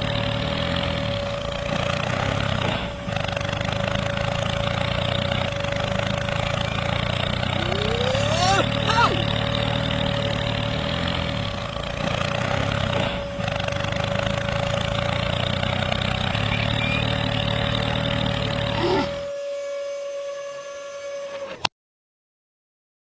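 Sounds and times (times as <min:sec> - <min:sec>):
constant high whine: 0:00.0 - 0:21.7
tractor engine running: 0:00.0 - 0:21.7.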